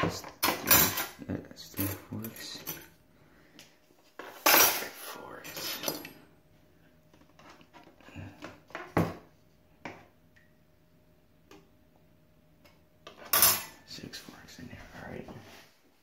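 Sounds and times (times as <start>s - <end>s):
metal cutlery clattering in basin: 0.1s - 2.9s, 4.4s - 6.2s, 13.2s - 13.8s.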